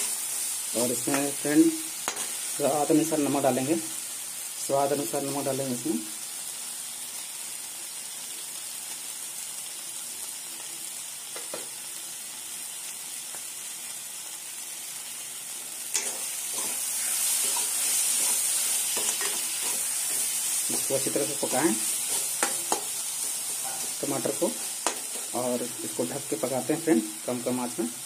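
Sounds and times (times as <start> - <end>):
food sizzling in a metal pan: 0.0 - 28.0
ladle stirring and scraping pan: 2.0 - 2.5, 15.9 - 26.1.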